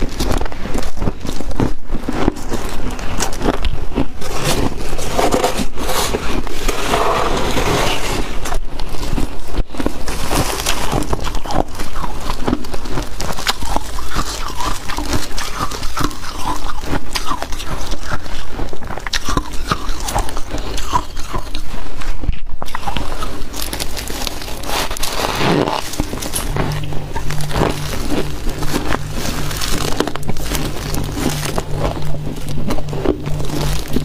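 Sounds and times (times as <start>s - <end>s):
ice crunching while chewed: 0.0s - 34.0s
frost being scraped: 4.1s - 12.4s, 22.7s - 34.0s.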